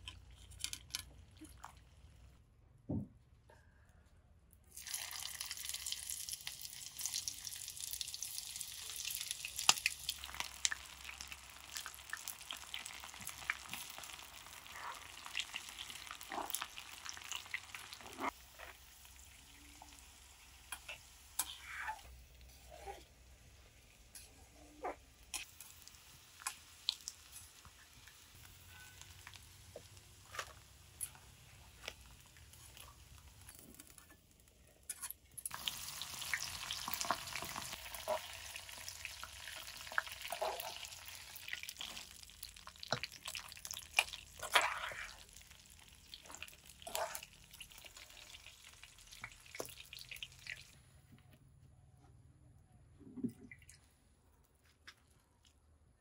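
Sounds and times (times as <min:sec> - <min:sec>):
hot oil sizzling in a wok: 0:04.8 - 0:22.0, 0:25.3 - 0:33.9, 0:35.5 - 0:50.3.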